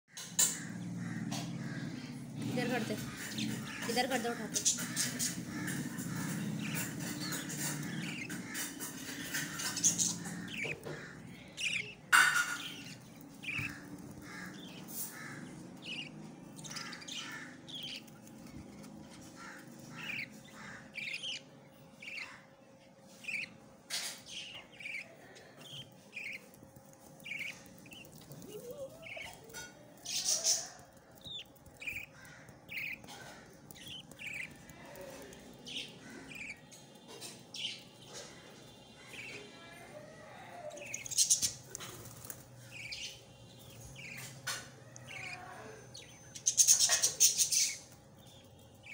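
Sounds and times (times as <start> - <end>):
chicks cheeping: 0.2 - 48.9
harsh chick calls: 0.3 - 23.8, 24.5 - 48.9.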